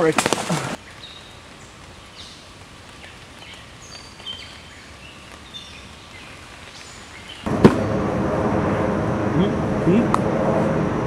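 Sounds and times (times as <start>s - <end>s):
steady background noise: 7.4s - 11.0s.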